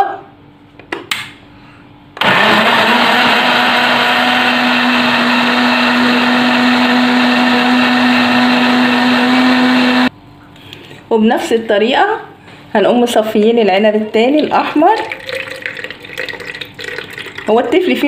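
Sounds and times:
blender running: 2.2 - 10.1.

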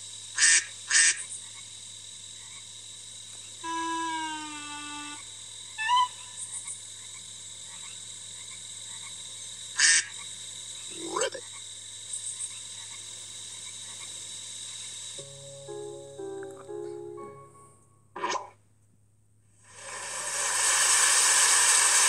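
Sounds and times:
background hiss: 0.0 - 22.0
imitated animal calls: 5.8 - 6.7, 10.9 - 11.4.

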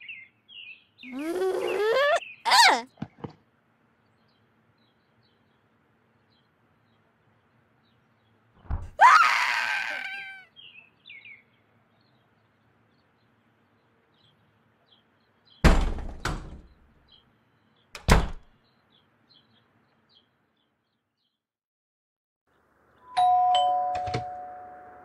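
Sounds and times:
faint bird chirps: 0.0 - 3.0.

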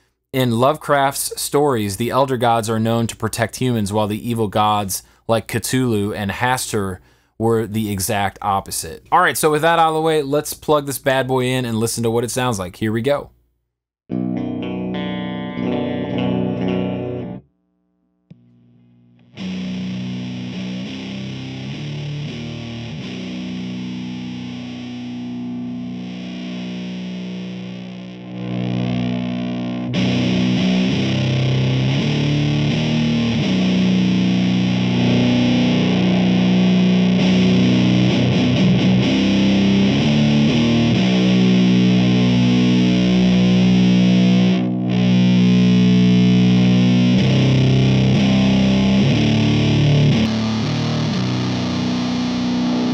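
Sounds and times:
fuzzed electric guitar riffing: 14.1 - 17.4, 18.8 - 52.9.

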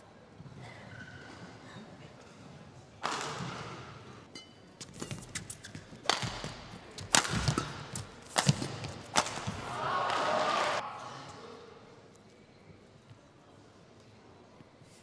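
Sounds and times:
rackets striking shuttlecock: 3.0 - 10.4.

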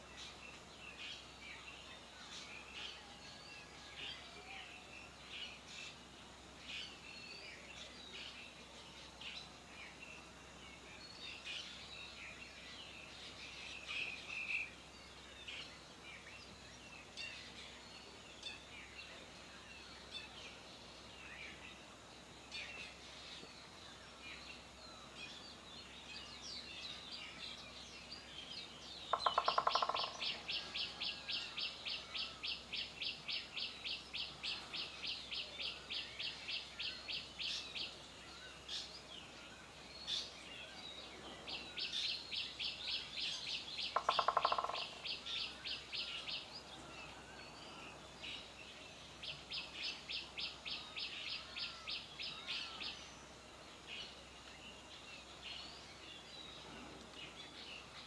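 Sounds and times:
bird chirping rapidly: 29.1 - 30.4, 43.8 - 45.3.

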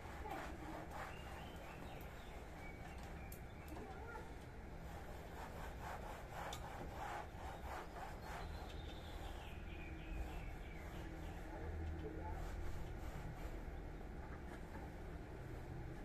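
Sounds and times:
cloth pad rubbing on wall: 0.0 - 2.9, 4.8 - 13.8.

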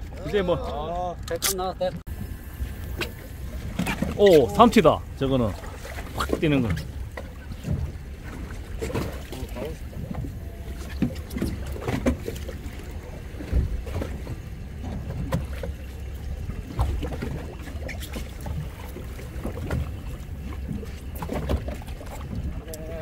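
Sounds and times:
water lapping against boat hull: 0.0 - 23.0
knocks on boat: 13.4 - 15.6.

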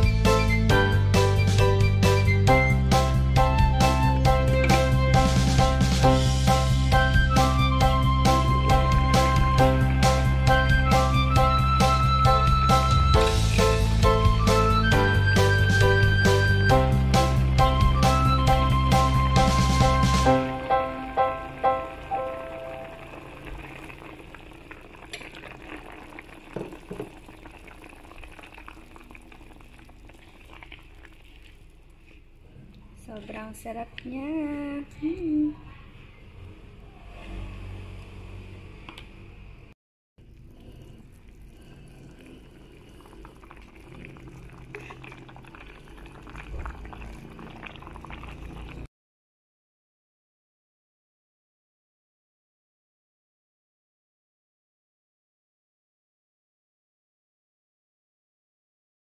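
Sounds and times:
broth boiling with small pops: 21.8 - 33.2, 40.2 - 48.9
spatula stirring with clicks and sloshing: 22.7 - 33.4, 40.2 - 48.9.

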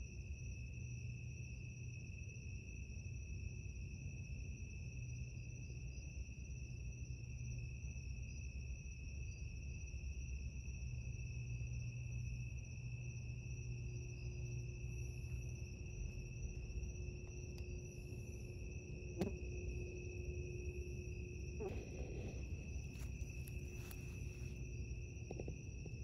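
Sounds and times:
crickets trilling: 0.0 - 26.0
faint low rumble: 10.2 - 26.0.

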